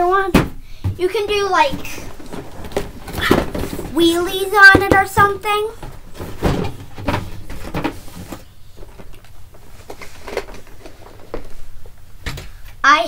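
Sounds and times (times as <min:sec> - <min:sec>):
rustling: 0:01.7 - 0:12.0.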